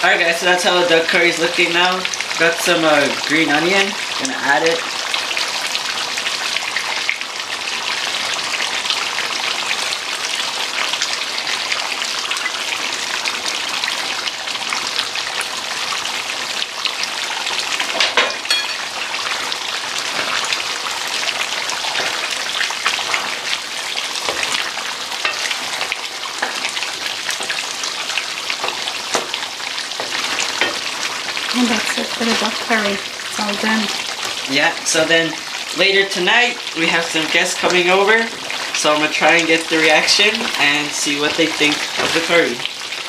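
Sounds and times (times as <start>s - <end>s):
curry bubbling and sizzling in pan: 0.0s - 43.0s
wooden spoon stirring: 24.2s - 32.7s.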